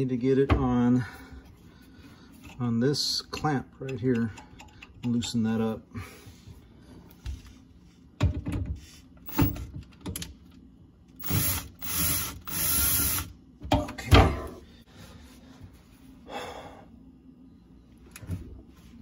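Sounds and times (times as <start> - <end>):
cordless drill motor running: 11.2 - 13.3.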